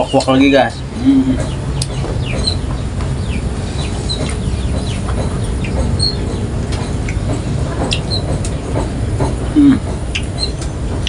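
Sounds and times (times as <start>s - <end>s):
chickens clucking: 0.0s - 11.0s
steady low rumble: 0.0s - 11.0s.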